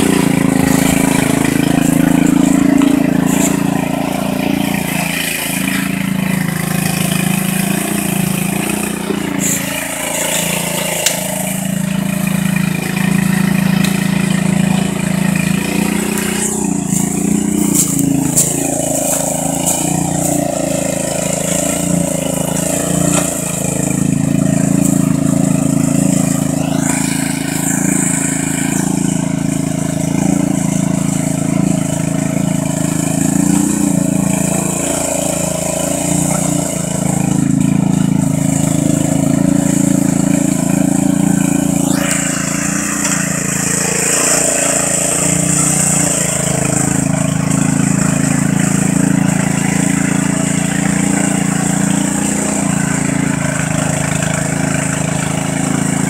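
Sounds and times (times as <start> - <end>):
lawn mower engine running: 0.0 - 56.0.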